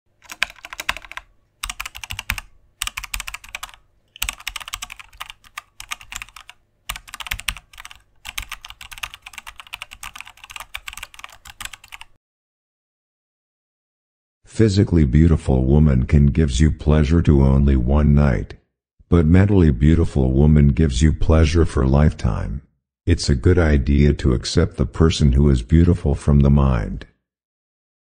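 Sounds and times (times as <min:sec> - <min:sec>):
keyboard key clicks: 0:00.2 - 0:12.1.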